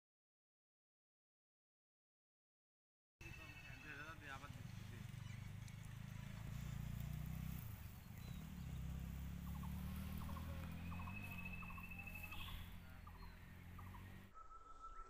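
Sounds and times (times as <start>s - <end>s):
short chirping calls: 3.2s - 15.0s
low motor hum: 4.6s - 14.3s.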